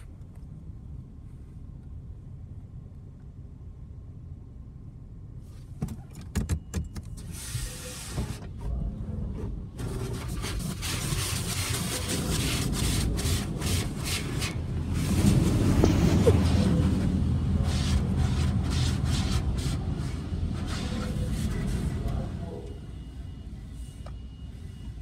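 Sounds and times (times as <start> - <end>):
low steady rumble: 0.0 - 5.8, 7.3 - 25.0
car wash equipment rushing: 7.1 - 23.4.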